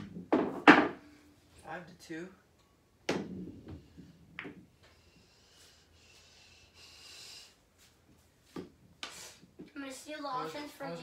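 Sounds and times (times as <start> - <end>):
knock: 0.0 - 1.0
faint breathy hiss: 3.8 - 8.0, 9.0 - 9.6.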